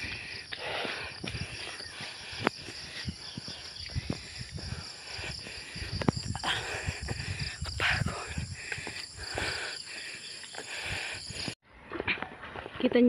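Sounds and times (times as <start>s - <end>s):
insects chirring: 0.0s - 11.6s.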